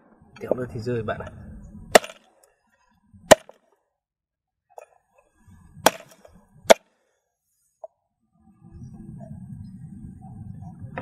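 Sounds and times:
cleaver chopping on wooden block: 2.0 - 2.2, 3.3 - 3.6, 5.8 - 6.8.

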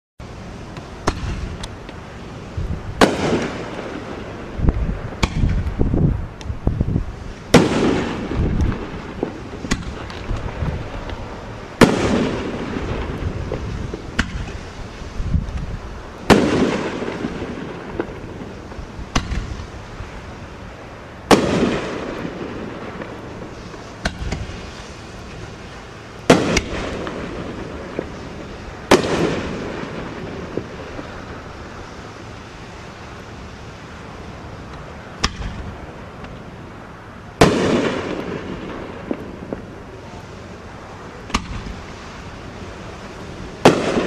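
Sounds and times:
firework shells bursting with rumble: 0.6 - 32.0, 34.0 - 36.7, 37.3 - 44.0
faint firework pops: 0.7 - 2.0, 3.0 - 4.0, 4.7 - 5.8, 7.5 - 11.2, 11.8 - 14.6, 19.1 - 19.7, 23.0 - 24.6, 26.3 - 28.2, 34.7 - 36.4, 41.2 - 41.9, 43.6 - 44.0.

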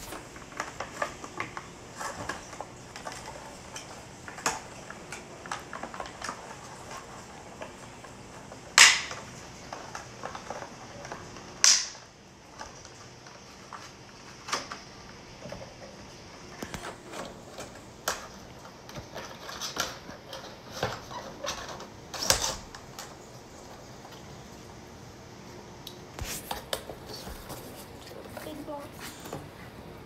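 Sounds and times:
plastic packaging clicks and crinkles: 0.0 - 24.4.

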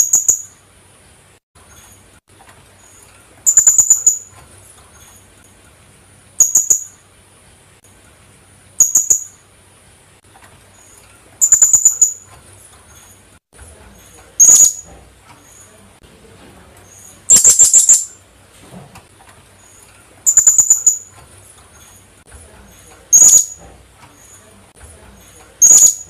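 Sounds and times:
parrot shrill chirps: 0.0 - 0.6, 3.4 - 4.3, 6.4 - 7.0, 8.8 - 9.4, 11.4 - 12.3, 14.4 - 14.8, 17.3 - 18.2, 20.2 - 21.1, 23.1 - 23.6, 25.6 - 26.0.

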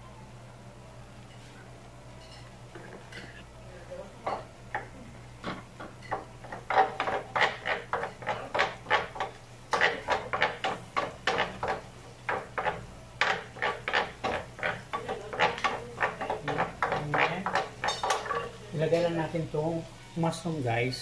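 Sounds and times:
wooden spoon scraping grill pan: 6.5 - 18.6.

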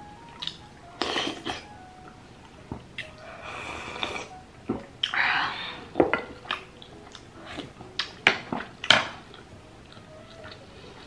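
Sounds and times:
dishes and cutlery clinking: 6.0 - 10.6.

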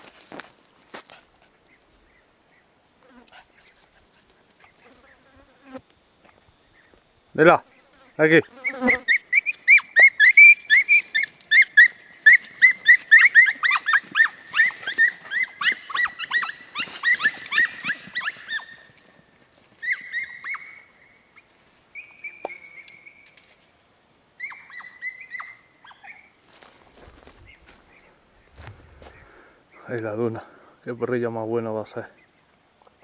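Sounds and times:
hounds yelping: 8.6 - 21.0, 24.4 - 28.2.

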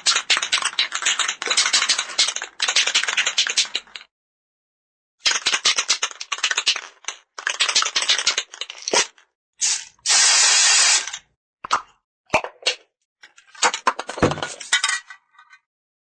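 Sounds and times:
spray can ball rattling: 0.0 - 4.0, 5.2 - 11.2
aerosol spray hiss: 10.1 - 11.1.

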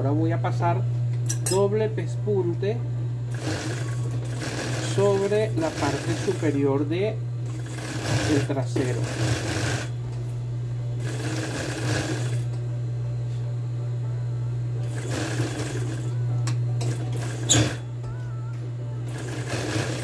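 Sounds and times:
sewing machine stitching: 3.3 - 6.5, 7.5 - 9.9, 11.0 - 12.5, 14.8 - 16.1, 16.8 - 17.9, 19.1 - 20.0.

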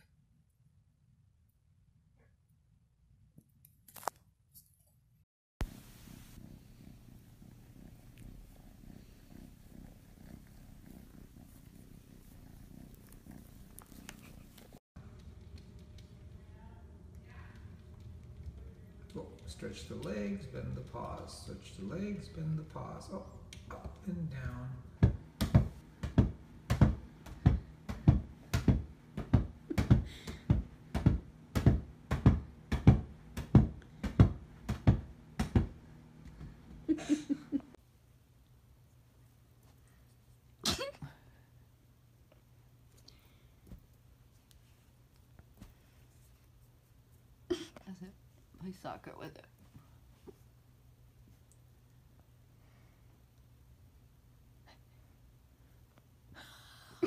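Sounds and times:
kitten purring: 5.6 - 14.8
beach ball thumping on carpet: 25.0 - 35.8.

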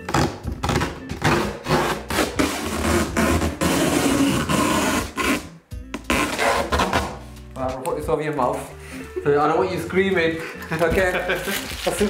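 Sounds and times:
packing tape ripping off cardboard: 0.1 - 5.5, 6.1 - 7.2, 10.7 - 12.0.

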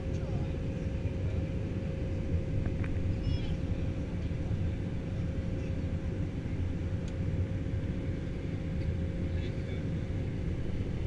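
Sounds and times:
jet engine and airflow rumble: 0.0 - 11.0
thin steady hum: 0.0 - 11.0.

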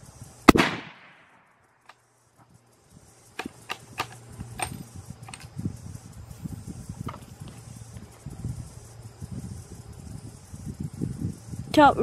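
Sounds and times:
rifle shot rumble and echo: 0.4 - 1.6
sharp clicks and ticks: 3.3 - 5.6.

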